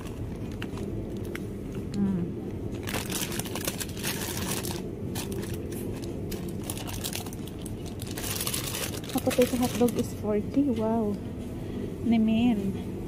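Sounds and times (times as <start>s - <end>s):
low background hum: 0.0s - 13.0s
plastic packaging crinkling: 2.7s - 10.3s.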